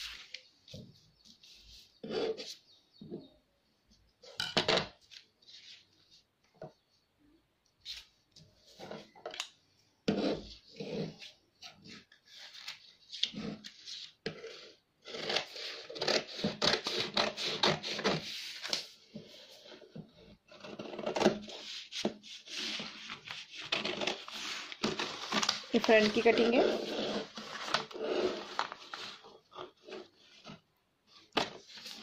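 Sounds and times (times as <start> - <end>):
paper crackling on table: 22.5 - 29.7.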